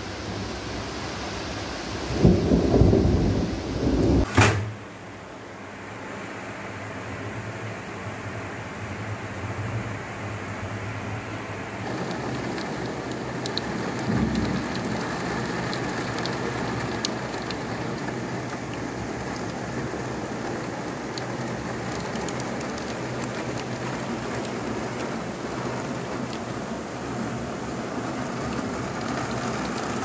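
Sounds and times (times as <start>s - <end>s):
heavy rain pouring: 0.0s - 4.3s, 10.6s - 30.0s
rain drop ticks: 11.8s - 30.0s.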